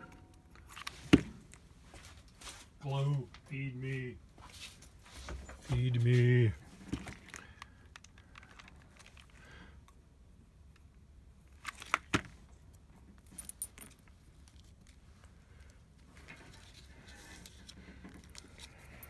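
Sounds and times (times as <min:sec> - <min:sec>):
cardboard and paper rustling: 0:16.1 - 0:19.0.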